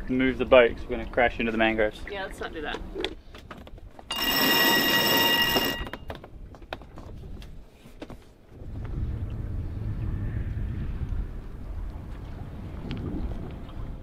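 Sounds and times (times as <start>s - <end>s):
wind rumbling on microphone: 6.2s - 14.0s.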